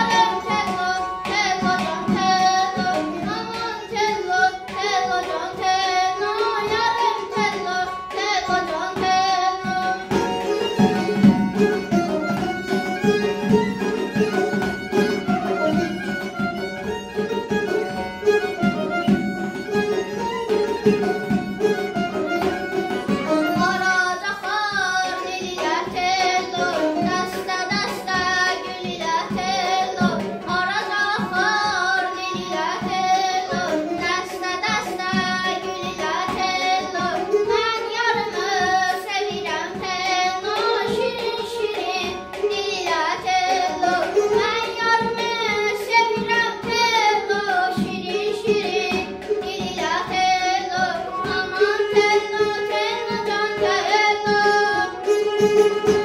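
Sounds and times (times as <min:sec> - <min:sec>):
child singing: 0:00.0 - 0:16.7, 0:17.3 - 0:56.0
instrumental accompaniment: 0:00.0 - 0:56.0
drum beat: 0:10.2 - 0:23.9.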